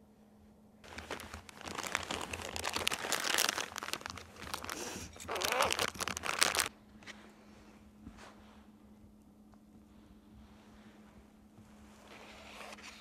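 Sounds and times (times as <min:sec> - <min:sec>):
plastic bags crinkling: 0:00.8 - 0:06.7.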